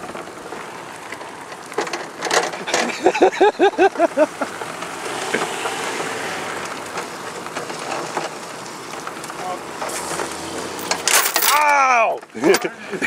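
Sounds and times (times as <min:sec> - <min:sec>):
tyres rolling over asphalt: 0:00.0 - 0:13.0
person laughing: 0:02.7 - 0:04.6, 0:12.4 - 0:13.0
rattling knocks: 0:04.7 - 0:11.6.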